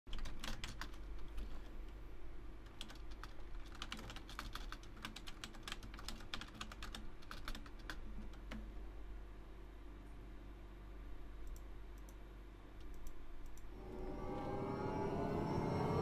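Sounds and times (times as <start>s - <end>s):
computer keyboard typing: 0.1s - 1.7s, 2.6s - 8.7s, 12.8s - 13.7s
faint low hum: 0.1s - 16.0s.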